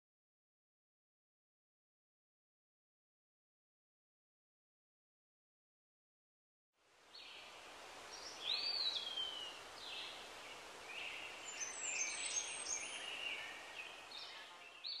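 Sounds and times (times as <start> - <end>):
soft steady hiss: 6.8 - 15.0
birds calling: 7.2 - 15.0.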